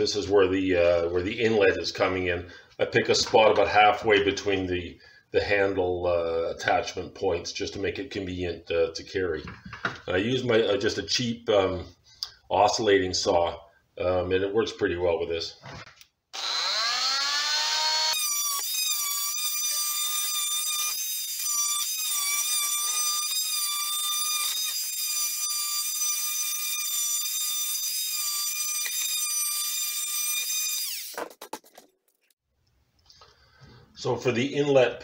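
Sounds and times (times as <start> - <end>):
oscillating saw whining: 16.4 - 31.3.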